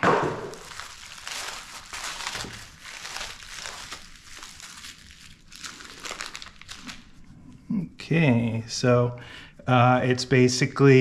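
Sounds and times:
packaging crinkling and rustling: 0.0s - 7.2s.

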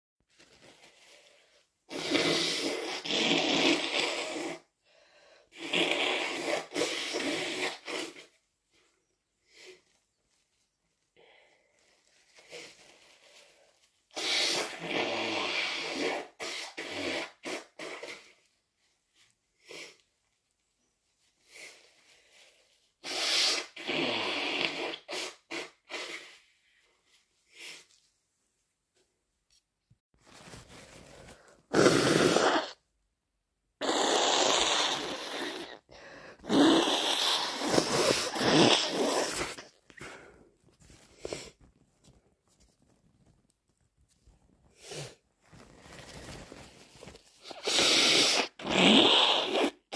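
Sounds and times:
person blowing nose: 1.0s - 8.5s, 12.4s - 18.6s, 19.6s - 20.0s, 21.4s - 27.9s, 30.4s - 32.9s, 33.8s - 41.6s, 44.7s - 49.9s.

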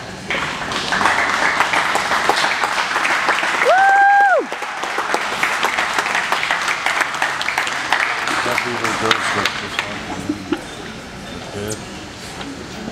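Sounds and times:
audience applauding: 0.3s - 10.0s.

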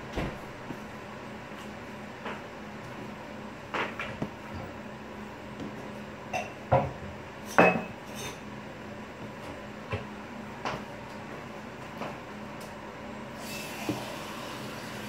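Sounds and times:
dough kneaded on countertop: 0.0s - 11.0s.

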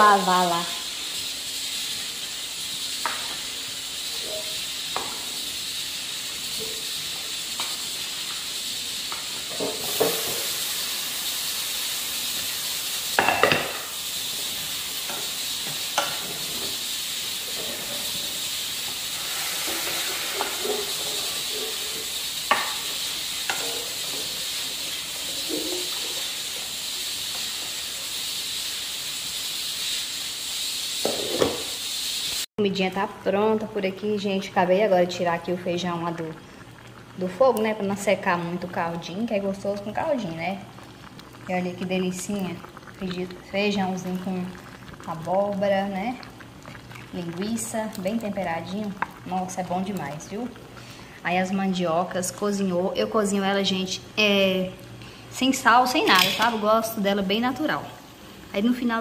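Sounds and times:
food hissing on a stove: 0.0s - 32.5s, 34.0s - 59.0s
utensils clinking on pots: 4.2s - 5.2s, 23.4s - 24.3s, 25.4s - 26.3s, 56.0s - 56.7s.

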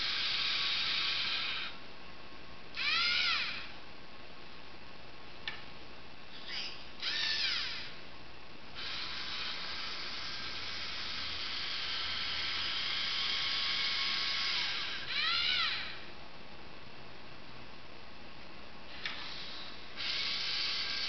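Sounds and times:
robot servo motors whining: 0.0s - 1.8s, 2.8s - 3.7s, 6.3s - 8.0s, 8.8s - 16.1s, 18.9s - 21.0s.

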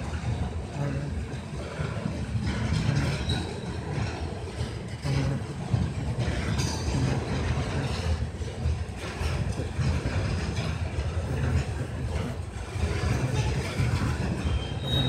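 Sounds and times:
freight train rumbling: 0.0s - 15.0s
train wheel squeals: 2.4s - 5.6s, 9.0s - 15.0s.

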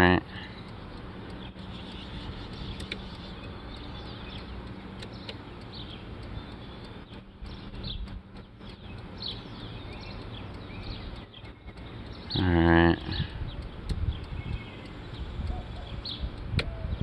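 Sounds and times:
small birds chirping: 0.0s - 17.0s
steady low hum: 0.0s - 17.0s
light clicks: 0.6s - 12.4s.

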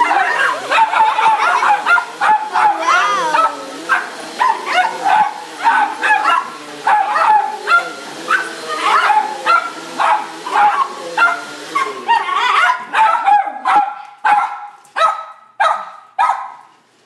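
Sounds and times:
vacuum cleaner motor hiss: 0.0s - 12.2s
small dogs yapping: 0.0s - 16.5s.

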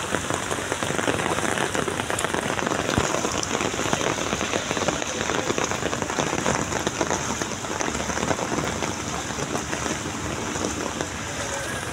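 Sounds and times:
heavy rain on standing water: 0.0s - 11.9s.

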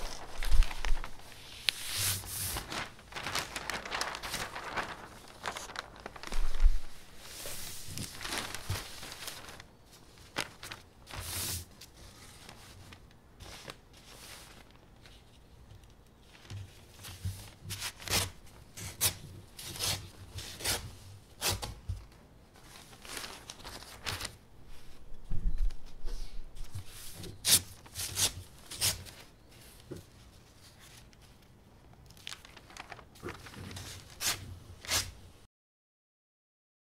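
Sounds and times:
knife slitting paper: 0.0s - 9.7s, 27.0s - 29.2s, 32.2s - 35.2s
paper rustling: 0.0s - 35.2s.

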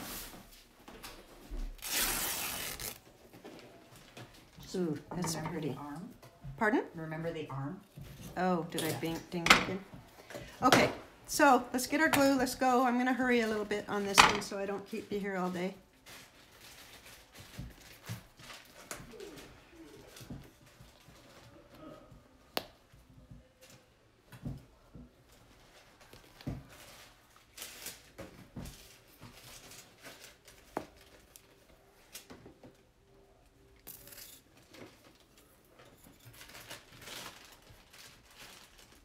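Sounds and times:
rustling of materials: 0.0s - 6.6s, 12.2s - 39.0s.

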